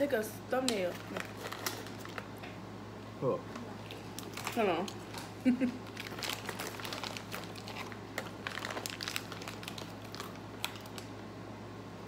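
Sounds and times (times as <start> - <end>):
plastic wrapper crinkling: 0.8 - 2.4, 3.8 - 11.2.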